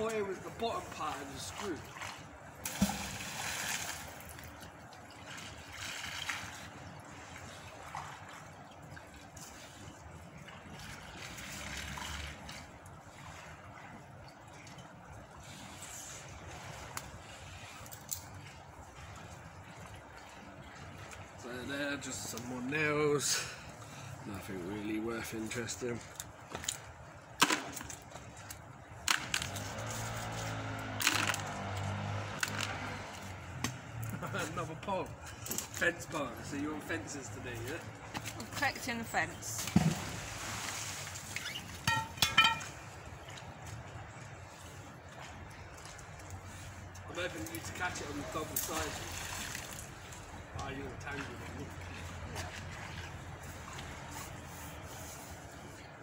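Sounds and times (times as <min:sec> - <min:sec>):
water trickling: 0:00.0 - 0:54.8
sharp metallic knocks: 0:41.8 - 0:42.7.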